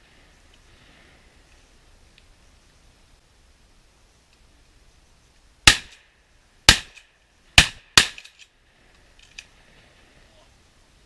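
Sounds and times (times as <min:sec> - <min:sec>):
shotgun shots with echo: 0:05.7 - 0:06.0, 0:06.7 - 0:07.0.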